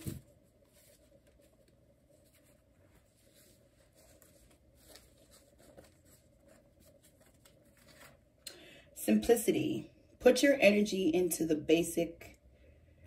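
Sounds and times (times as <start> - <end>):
cards rustling: 0.0 - 8.3.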